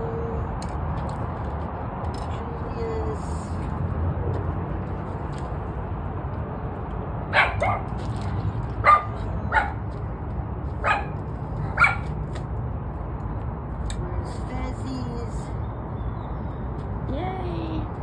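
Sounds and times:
dog barking: 7.3 - 7.9, 8.8 - 9.8, 10.8 - 12.1.

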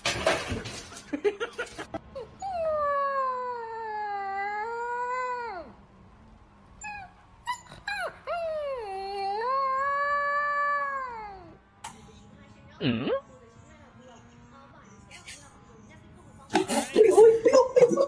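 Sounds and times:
puppy howling: 2.2 - 5.7, 6.8 - 11.6.

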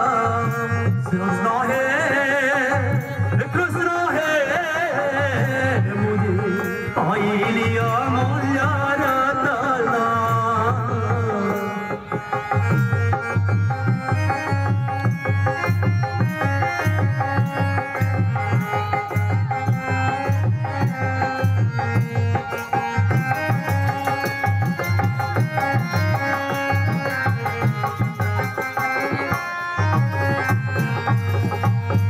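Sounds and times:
drums playing fast beat: 12.6 - 32.0.

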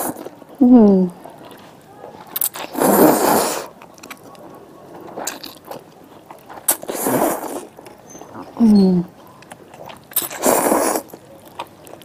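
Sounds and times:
mouth clicks and chewing: 0.0 - 12.0
slurping noodles: 2.3 - 4.2, 6.5 - 8.6, 9.8 - 11.2.

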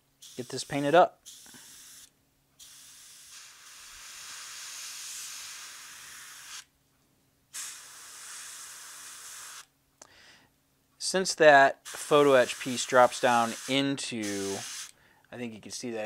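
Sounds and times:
airbrush spraying paint: 0.2 - 6.7, 7.5 - 9.7, 11.8 - 14.9.

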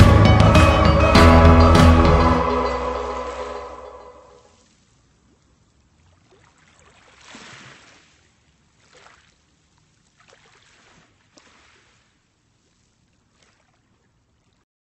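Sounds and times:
paddle splashing water: 4.6 - 14.6.

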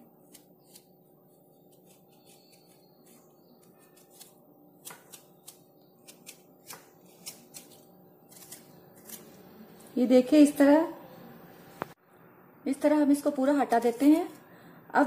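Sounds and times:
knife cutting and scraping rind: 0.2 - 10.0.

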